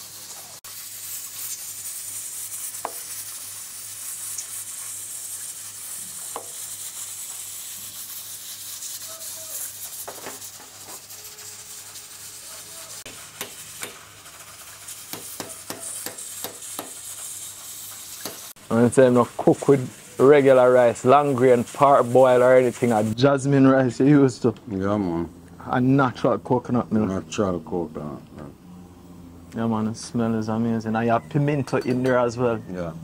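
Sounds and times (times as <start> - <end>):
frying sizzle: 0.0 - 24.1
knife chopping on wooden board: 2.8 - 3.0, 6.3 - 6.6, 13.4 - 14.0, 15.1 - 17.0.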